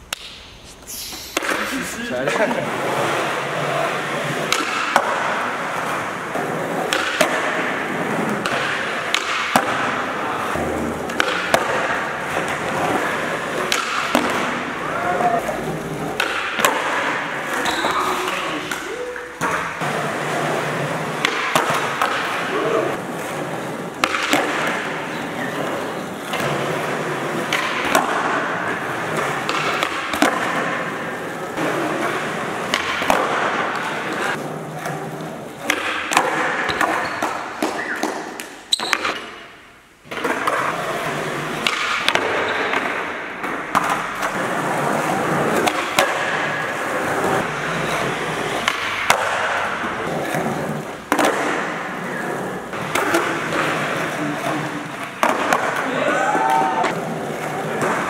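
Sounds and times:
skateboard rolling on gym floor: 0.7 - 58.0
skateboard tail pops and landings: 4.4 - 5.5, 6.3 - 10.0, 10.6 - 14.7, 24.0 - 25.0, 26.2 - 34.3, 40.1 - 47.5, 48.6 - 52.0.

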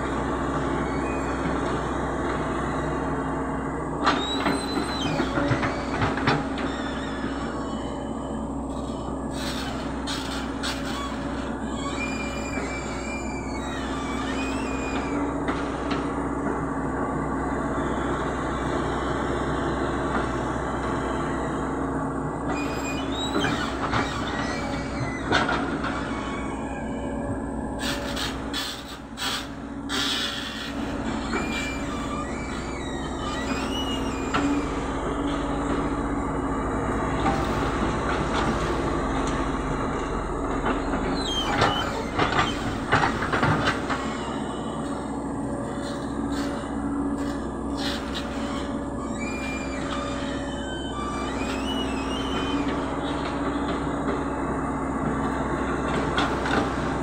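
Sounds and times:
excavator diesel engine running: 0.0 - 57.0
short metallic squeal: 4.2 - 15.2, 22.5 - 35.5, 41.1 - 42.8, 43.7 - 45.1, 45.7 - 53.8.

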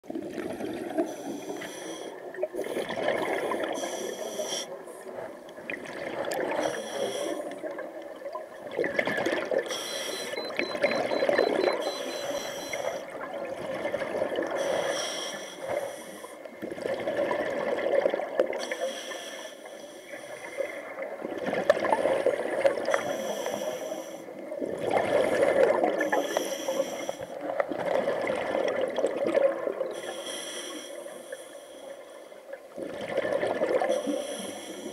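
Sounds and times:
exhaled bubbles burbling: 0.0 - 1.1, 2.2 - 3.8, 5.6 - 6.7, 7.6 - 9.7, 10.4 - 14.6, 16.6 - 18.6, 24.4 - 26.2, 27.4 - 29.9, 32.7 - 34.1
regulator hissing inhale: 1.1 - 2.2, 3.8 - 4.8, 6.6 - 7.6, 9.7 - 10.4, 14.6 - 16.4, 18.6 - 20.8, 23.0 - 24.3, 26.0 - 27.4, 30.0 - 32.4, 33.9 - 34.9.

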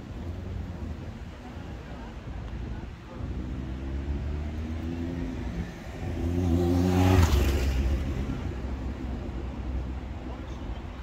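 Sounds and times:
car driving past: 3.4 - 8.6.

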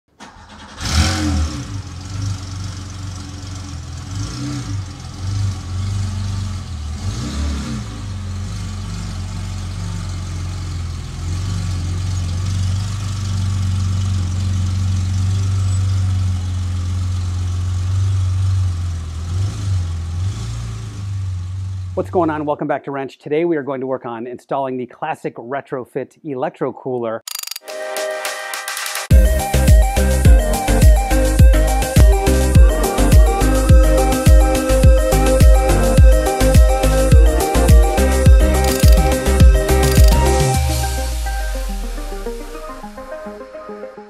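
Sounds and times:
car engine idling: 0.1 - 19.3, 30.7 - 42.4
car engine starting and revving: 0.1 - 22.2, 32.8 - 43.0.

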